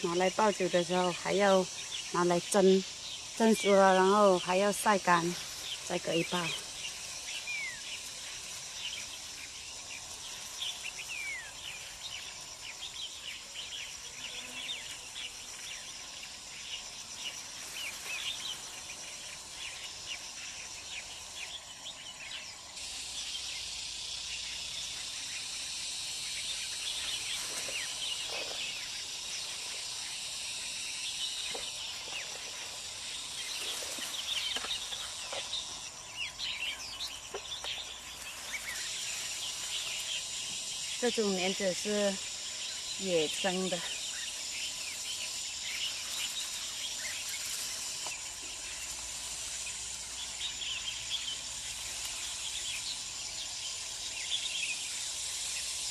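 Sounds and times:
birds chirping: 0.0s - 55.8s
high insect drone: 0.0s - 55.9s.

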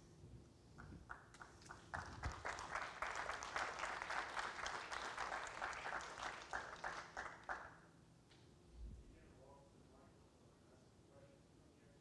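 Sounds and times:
audience applauding: 1.1s - 7.8s.

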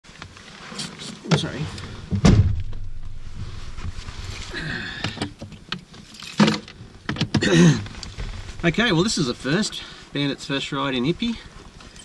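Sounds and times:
rustling inside car: 0.1s - 4.6s, 5.2s - 12.0s.

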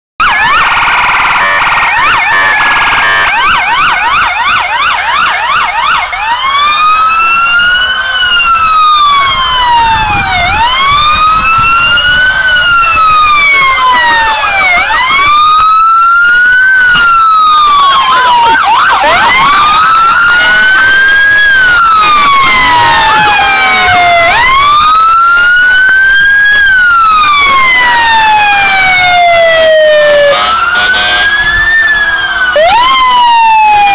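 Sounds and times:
fast electronic siren yelp: 0.2s - 33.9s
siren wailing: 0.2s - 33.9s.

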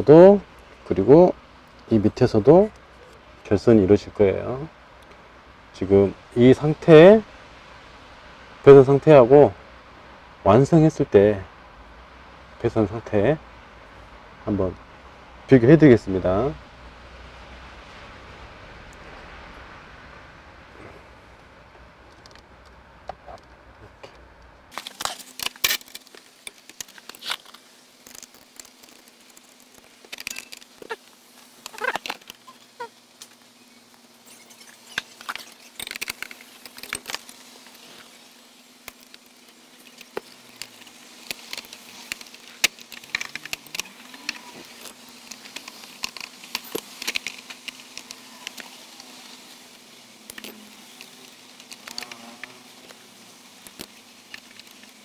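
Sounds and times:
faint steady hum: 0.0s - 55.0s
wires and plastic rustling and clicking: 21.4s - 55.0s.

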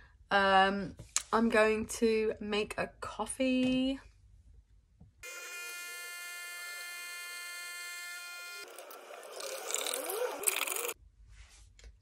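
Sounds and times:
coffee machine pump buzzing: 5.2s - 11.0s.

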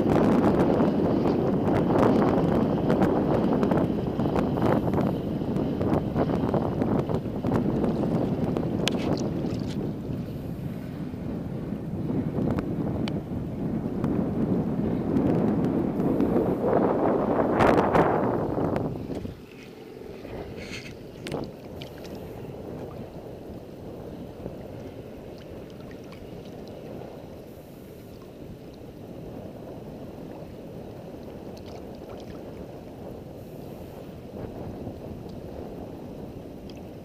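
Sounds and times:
wind noise on microphone: 0.0s - 37.0s
seawater lapping and sloshing: 7.4s - 11.0s, 19.0s - 29.0s, 30.2s - 34.4s.

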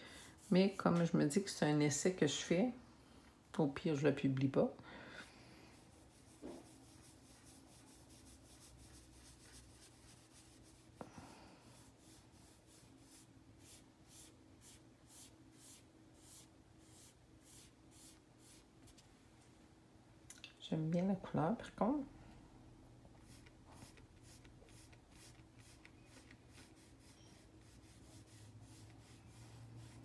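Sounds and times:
applicator rubbing on paper: 23.2s - 30.0s.

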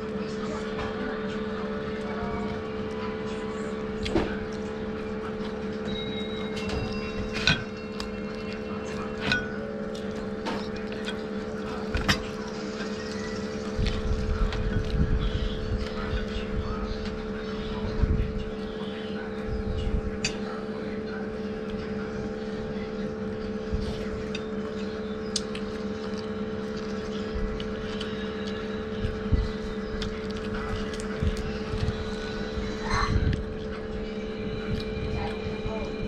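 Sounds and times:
food tearing and handling: 6.6s - 17.4s, 23.3s - 35.4s.

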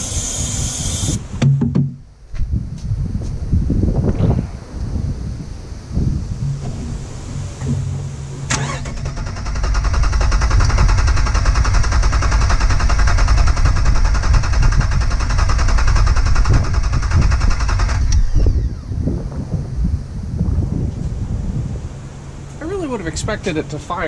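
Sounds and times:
engine cranking by starter: 6.5s - 19.0s.

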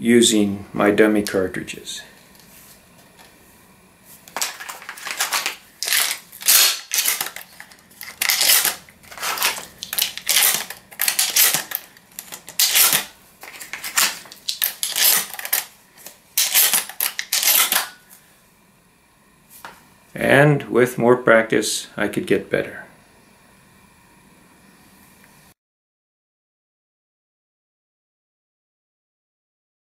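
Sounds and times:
shotgun shells loading clacks: 4.3s - 18.0s.

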